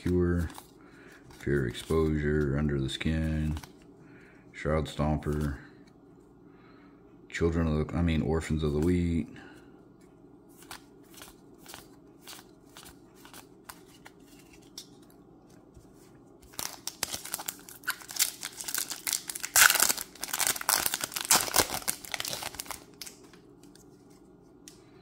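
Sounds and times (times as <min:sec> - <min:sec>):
foil wrapper crinkling: 0:16.5 - 0:23.4.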